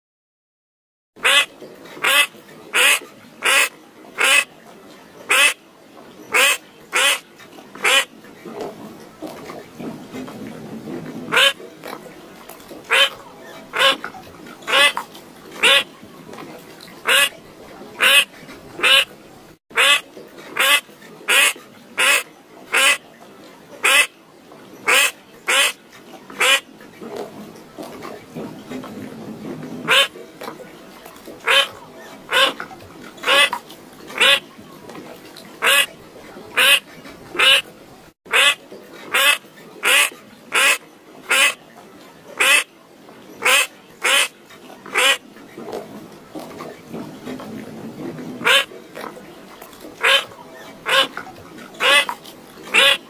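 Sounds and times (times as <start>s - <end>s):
bird calling: 12.9s - 14.0s, 15.6s - 15.9s, 17.0s - 17.3s.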